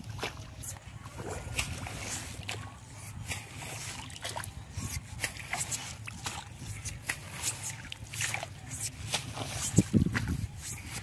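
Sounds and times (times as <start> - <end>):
water and mud splashing: 0.0 - 11.0.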